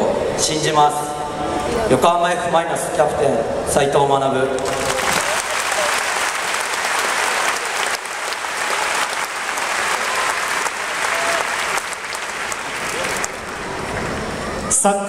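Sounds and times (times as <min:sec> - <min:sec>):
stadium crowd applauding: 0:04.4 - 0:14.8.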